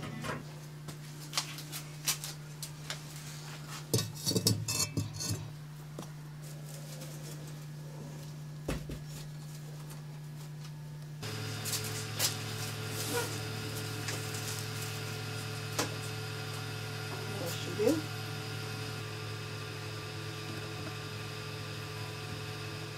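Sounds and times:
ceramic bowls clinking: 4.0s - 5.5s.

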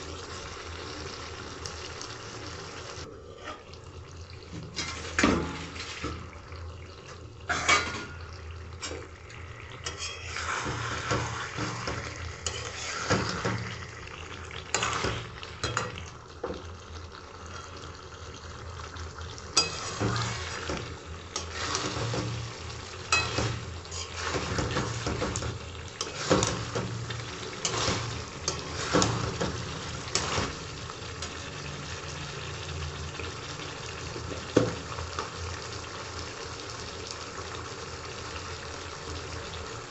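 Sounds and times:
curry frying: 0.0s - 39.9s
metal spatula scraping a pan: 3.3s - 3.7s, 4.7s - 6.1s, 7.5s - 8.2s, 9.8s - 13.7s, 14.7s - 15.8s, 19.6s - 20.8s, 21.4s - 22.4s, 23.1s - 26.8s, 27.5s - 30.6s.

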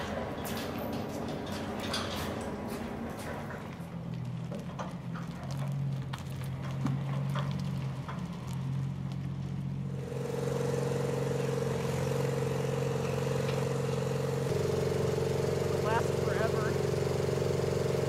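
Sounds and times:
trailer clicking and rattling: 0.0s - 9.9s
truck engine running: 0.0s - 18.0s
van engine pulling away: 0.0s - 18.0s
steady higher hum: 9.8s - 18.0s.

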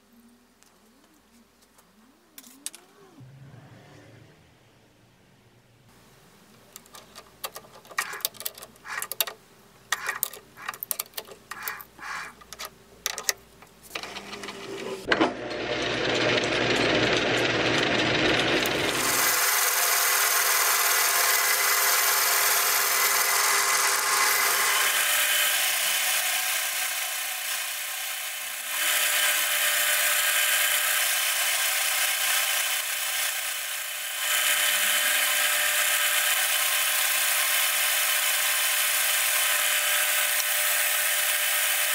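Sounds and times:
chuck clamping clicks and knocks: 6.7s - 13.8s
lathe cutting steel: 14.1s - 41.9s.

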